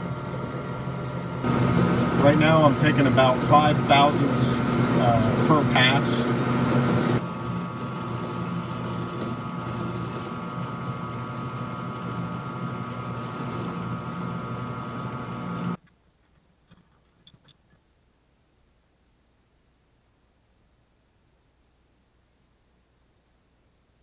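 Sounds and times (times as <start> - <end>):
metal lathe whine: 0.0 - 15.8.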